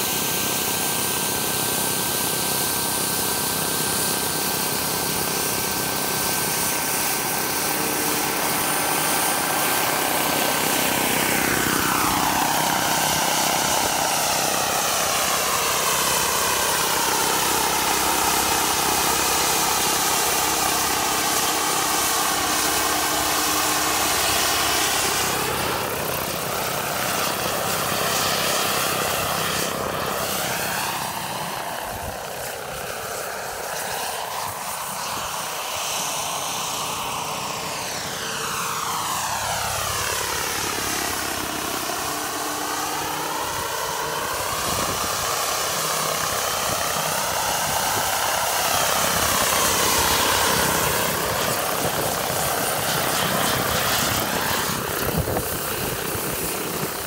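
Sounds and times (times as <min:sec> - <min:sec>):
model helicopter turbine whine: 0:00.0 - 0:57.0.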